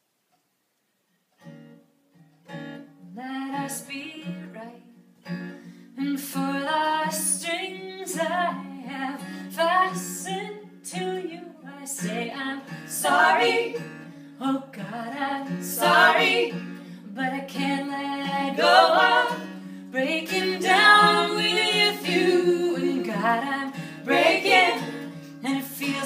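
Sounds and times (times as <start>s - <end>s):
women singing: 6.0s - 26.0s.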